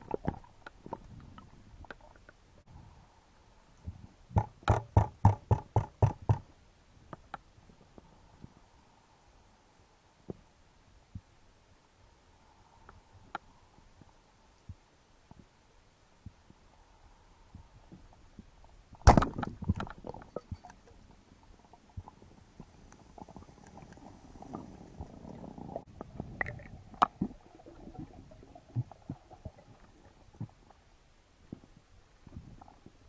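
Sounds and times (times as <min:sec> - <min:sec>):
underwater clicks and knocks: 0:04.3 - 0:06.5, 0:19.0 - 0:21.1.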